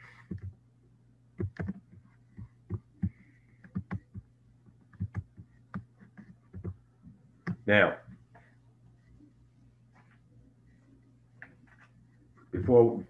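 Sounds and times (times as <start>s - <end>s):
steady low hum: 0.0s - 13.0s
short clicks and taps: 1.4s - 4.3s.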